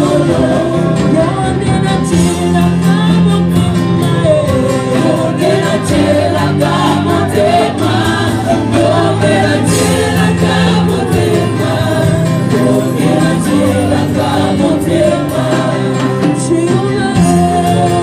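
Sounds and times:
choir singing gospel song: 0.0 - 18.0
guitar: 0.0 - 18.0.

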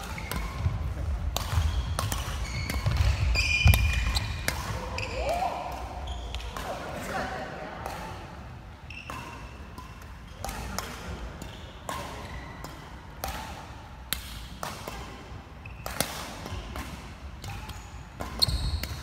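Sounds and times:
shoes squeaking on court floor: 0.0 - 7.1, 8.8 - 10.8, 11.4 - 12.9, 15.6 - 16.8, 17.6 - 19.0
rackets hitting shuttlecock: 0.0 - 19.0.

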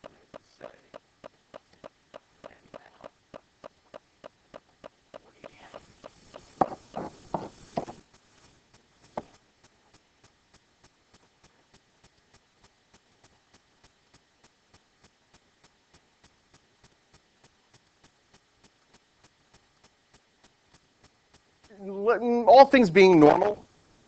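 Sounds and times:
fast even ticking: 0.0 - 23.6
pen writing on whiteboard: 5.2 - 8.0.

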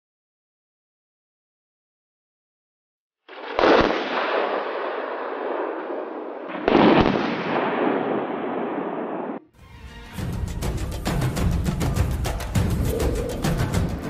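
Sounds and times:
bomb detonations with rumble: 3.4 - 9.4.

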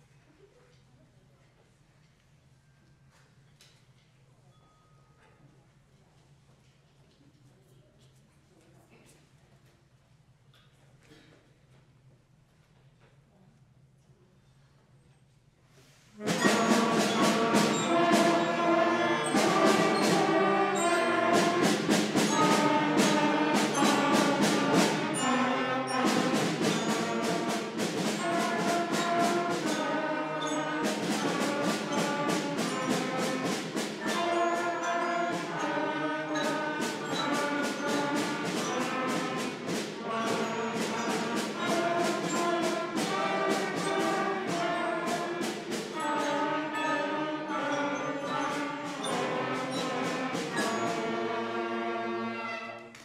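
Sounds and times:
concert band playing: 16.2 - 52.9
percussion beat: 16.2 - 53.0.

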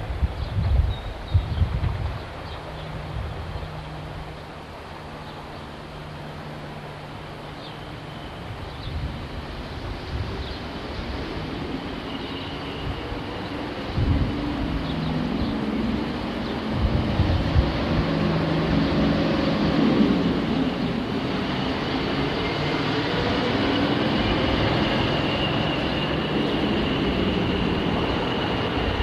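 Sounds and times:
diesel locomotive running: 0.1 - 29.0.

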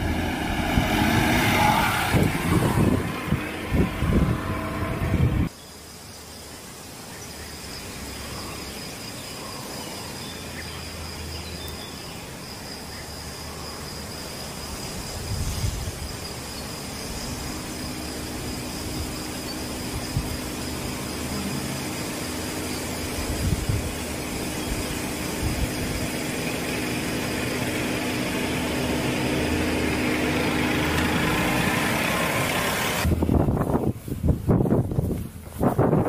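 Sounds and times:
car engine running low: 0.0 - 5.5, 14.7 - 36.0
insects trilling: 5.5 - 33.1
steady low hum: 15.1 - 34.2.

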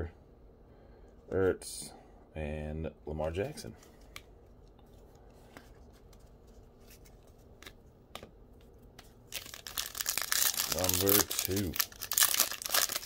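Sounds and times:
foil wrapper crinkling: 9.3 - 13.0.

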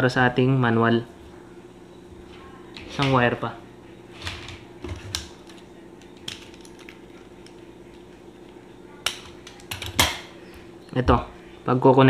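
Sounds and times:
faint steady hum: 0.0 - 12.0
small tools clicking and clinking: 5.0 - 7.6.

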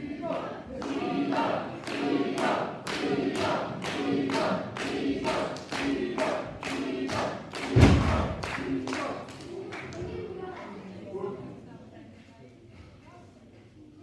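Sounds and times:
crowd clapping in rhythm: 0.0 - 10.2
crowd chanting in unison: 0.0 - 10.3.

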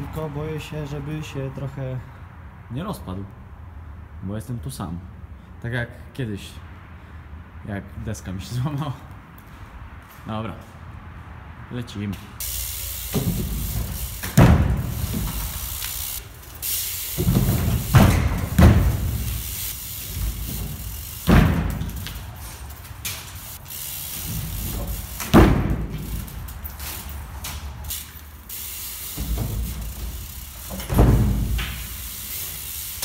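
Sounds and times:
bike tyres rolling: 12.4 - 33.0
bike wheels banging on boards: 12.5 - 33.0.

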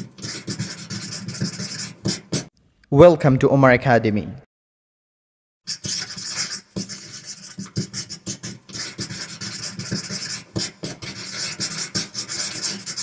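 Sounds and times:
marker scratching on whiteboard: 0.0 - 2.5, 5.7 - 13.0.

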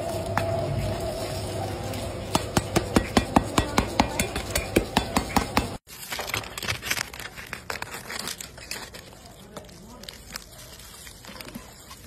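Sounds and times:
crackling sounds: 0.0 - 12.0
knife tapping crisp crackling: 2.2 - 5.8.

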